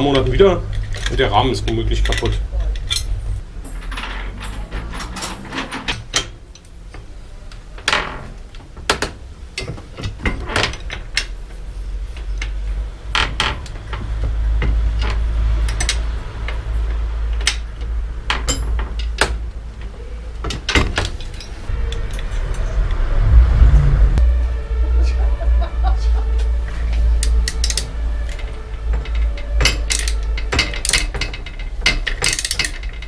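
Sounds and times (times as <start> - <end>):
low rumble: 0.0 - 6.6, 21.6 - 33.0
hand tools clicking on metal: 14.6 - 22.3, 27.1 - 33.0.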